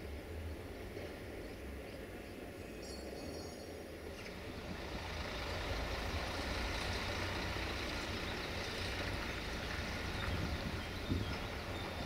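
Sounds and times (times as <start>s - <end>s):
road noise: 0.0s - 12.0s
lorry engine rumble driving past: 4.1s - 12.0s.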